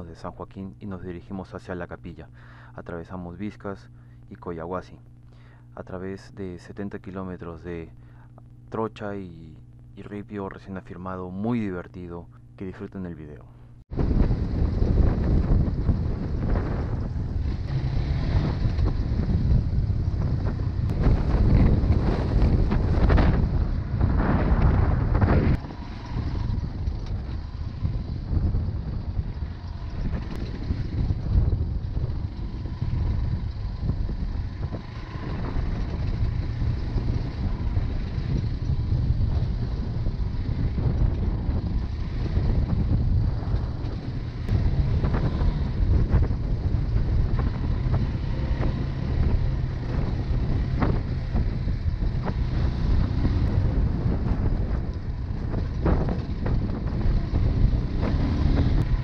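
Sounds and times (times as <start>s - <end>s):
motorcycle engine running: 13.7s - 59.0s
wind buffeting microphone: 13.9s - 59.0s.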